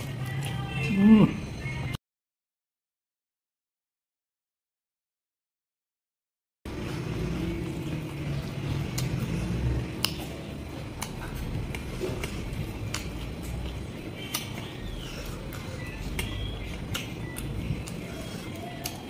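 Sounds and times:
man chewing: 6.7s - 19.0s
wet mouth clicks and smacks: 8.9s - 9.4s, 10.0s - 10.3s, 11.0s - 14.6s, 15.4s - 18.1s.

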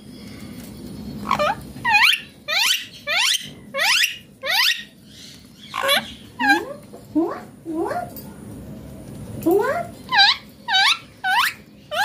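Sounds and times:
parakeet harsh calls: 1.2s - 6.8s, 10.1s - 12.0s.

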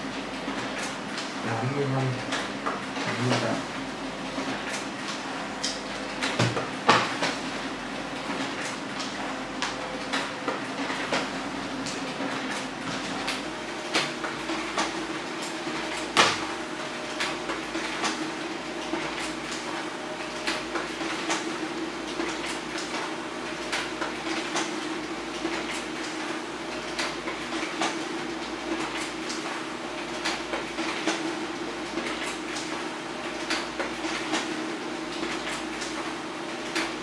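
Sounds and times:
printer motor hum: 0.0s - 37.0s
paper feed clicks: 8.2s - 37.0s.

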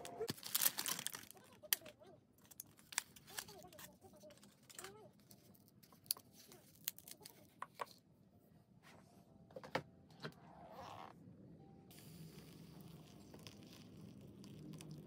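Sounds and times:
plastic wrapper crinkling: 0.0s - 7.8s, 12.5s - 15.0s.

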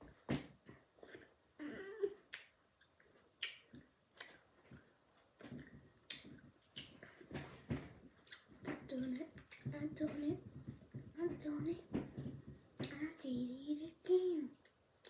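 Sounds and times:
soft vocal sounds: 1.0s - 2.4s.

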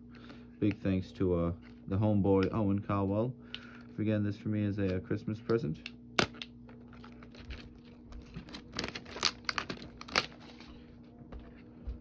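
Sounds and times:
plastic shrink wrap crackling: 7.0s - 10.7s.

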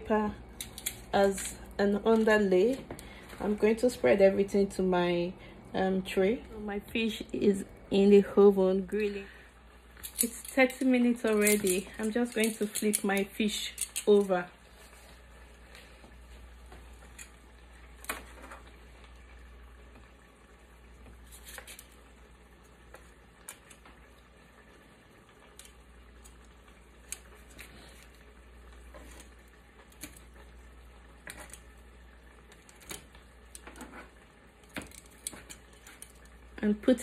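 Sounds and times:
low steady hum: 0.0s - 37.0s
metal tongs clicking on pan: 0.6s - 1.7s, 10.0s - 14.4s.

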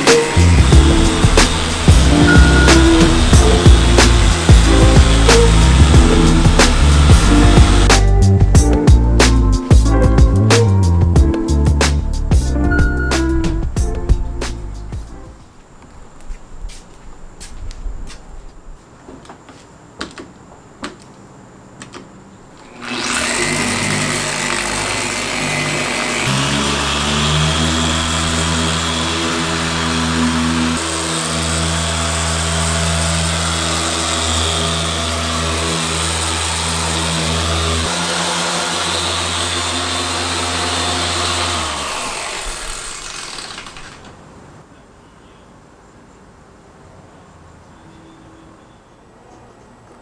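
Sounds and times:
orbital polisher running: 0.0s - 8.0s, 22.6s - 44.0s
light knocks: 19.0s - 21.1s.

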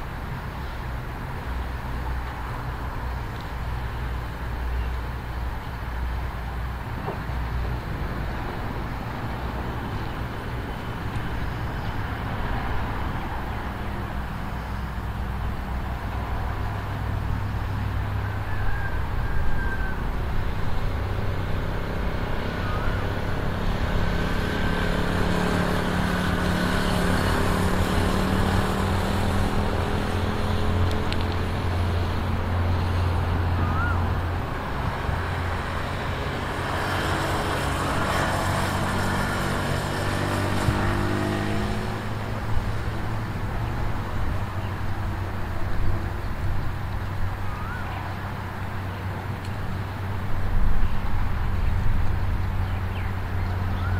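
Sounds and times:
motorcycle engine: 21.0s - 33.1s.

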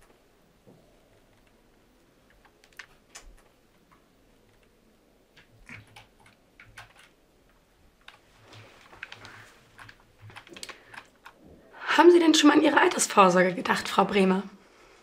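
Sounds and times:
computer keyboard keystrokes: 2.3s - 3.6s, 5.3s - 7.2s, 8.8s - 11.4s.

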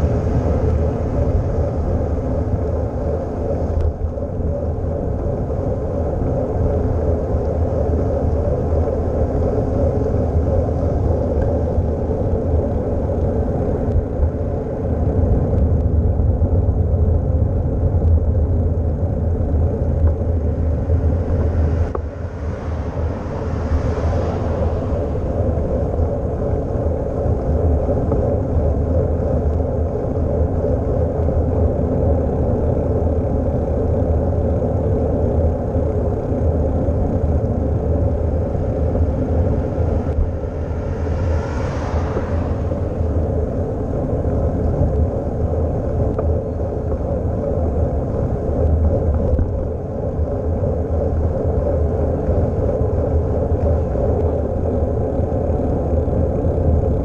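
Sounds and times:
wind rumble on microphone: 0.0s - 57.0s
car passing: 20.2s - 27.6s, 38.5s - 45.3s.

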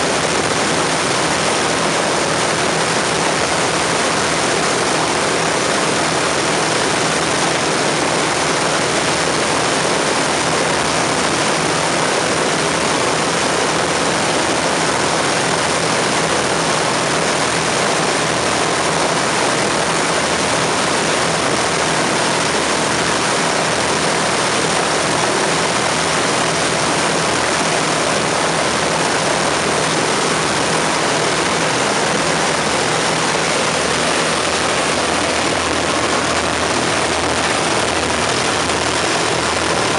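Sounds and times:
propeller aircraft engines droning: 0.0s - 39.9s.

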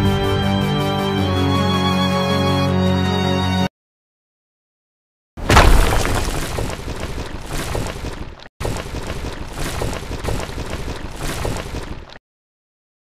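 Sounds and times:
concrete wall crumbling: 5.4s - 7.4s.

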